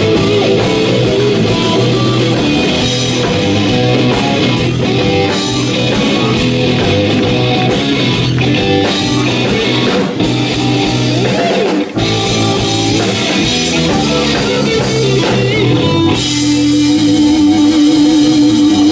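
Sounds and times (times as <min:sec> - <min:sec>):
electric guitar: 0:00.0 - 0:18.9
rock band playing: 0:00.0 - 0:18.9.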